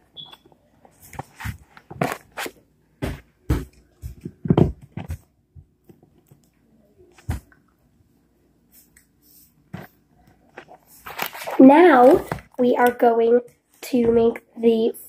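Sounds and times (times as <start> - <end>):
paper sheets crackling and rustling: 9.8 - 12.5.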